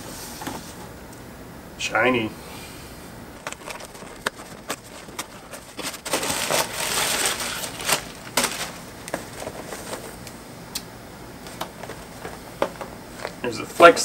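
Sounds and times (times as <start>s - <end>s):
cardboard clicks and knocks: 3.4s - 6.7s
packing paper crumpling: 3.4s - 10.1s.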